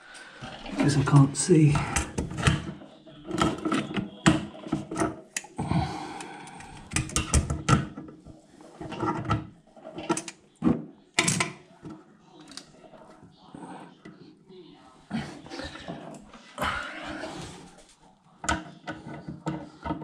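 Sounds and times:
clicks knocks and scrapes: 6.8s - 12.6s.

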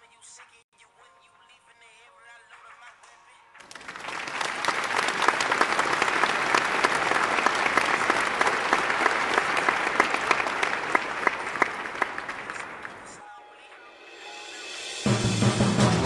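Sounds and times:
crowd applause: 3.6s - 13.2s.

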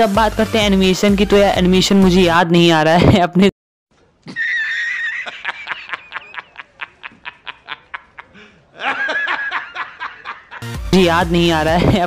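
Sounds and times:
man laughing hysterically: 4.3s - 10.6s.

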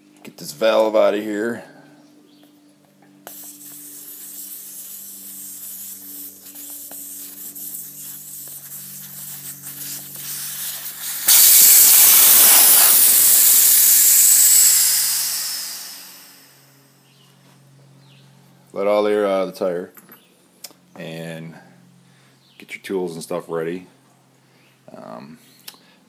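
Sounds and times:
air hissing from tire valve: 3.3s - 16.8s.

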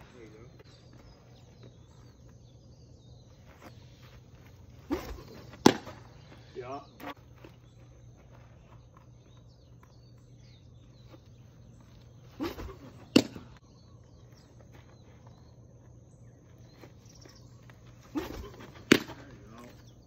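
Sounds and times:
faint bird chirps: 0.0s - 20.0s
ball smacking into mitt: 4.9s - 6.1s, 12.4s - 13.5s, 18.2s - 19.3s.

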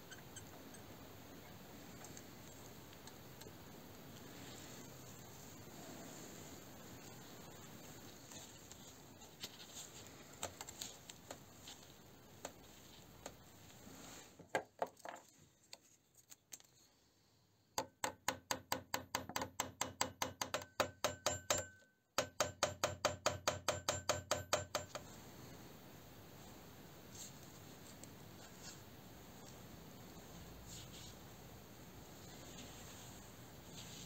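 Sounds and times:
hammer tapping on metal: 17.8s - 25.0s.

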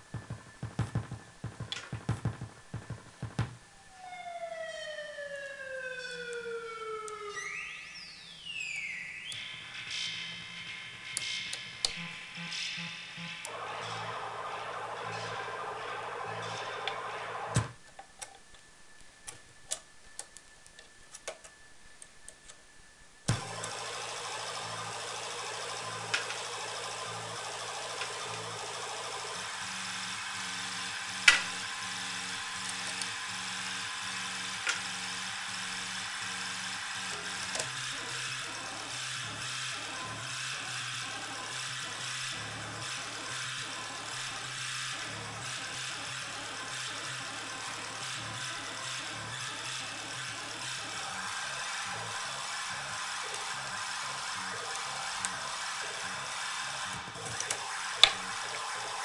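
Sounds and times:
faint steady whine: 0.0s - 41.5s
buzzy synth output: 7.3s - 17.8s.

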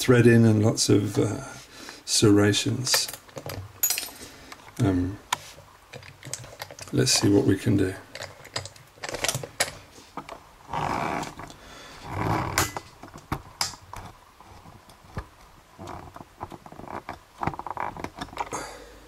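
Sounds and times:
metal clicks and knocks on stone: 8.1s - 10.4s.

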